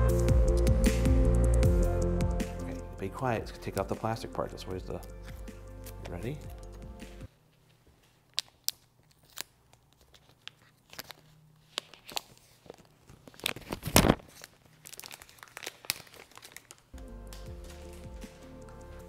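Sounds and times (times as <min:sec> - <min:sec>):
shrink wrap crinkling and tearing: 0:08.1 - 0:18.6.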